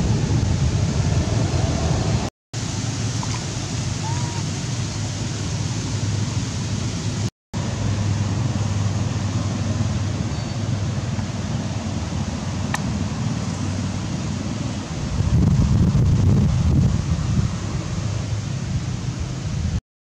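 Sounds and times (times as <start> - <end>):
wind buffeting microphone: 0.0 - 2.3, 7.9 - 19.8.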